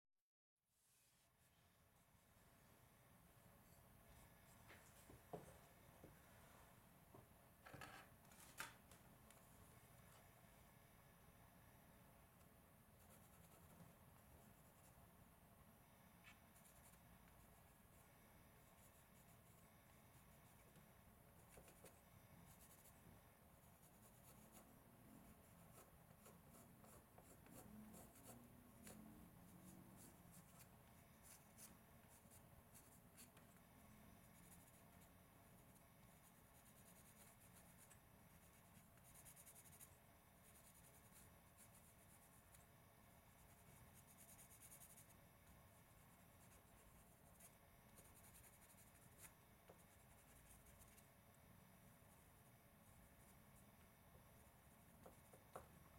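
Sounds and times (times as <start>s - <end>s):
pencil scratching on wood: 21.4s - 23.0s, 45.9s - 51.0s, 54.4s - 55.7s.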